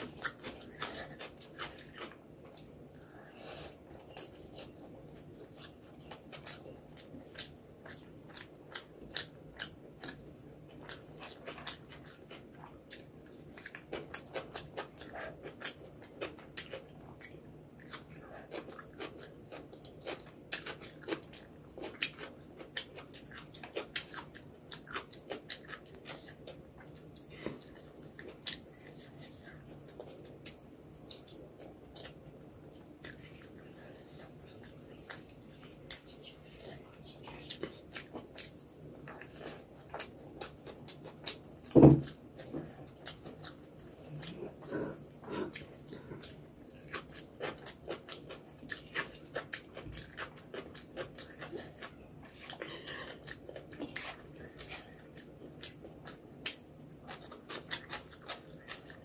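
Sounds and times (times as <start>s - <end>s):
chewing and mouth smacks: 0.0s - 59.0s.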